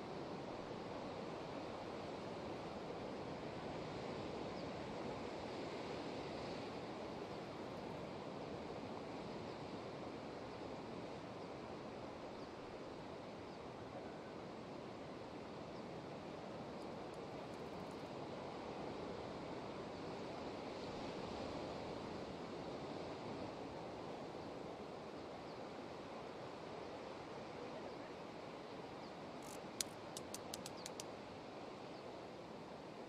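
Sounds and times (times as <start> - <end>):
distant surf on rocky shore: 29.4 - 31.0
sharp clicks: 29.4 - 31.1.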